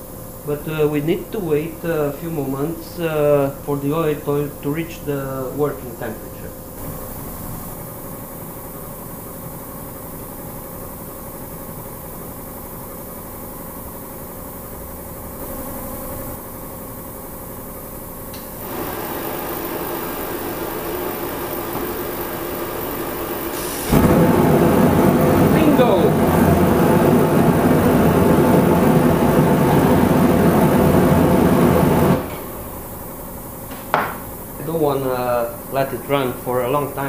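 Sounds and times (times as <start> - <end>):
steady mechanical hum: 0.0 - 37.0
burner blower running: 16.2 - 37.0.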